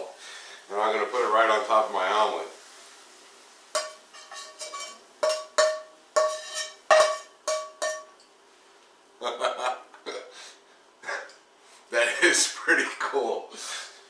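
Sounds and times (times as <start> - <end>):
metallic clinks of frying pan: 3.8 - 8.3.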